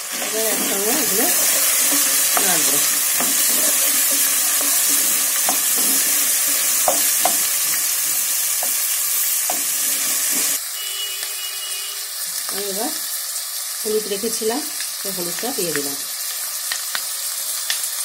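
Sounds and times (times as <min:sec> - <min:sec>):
vegetables sizzling in oil: 0:00.0 - 0:18.0
spatula scraping and knocking pan: 0:00.1 - 0:10.6.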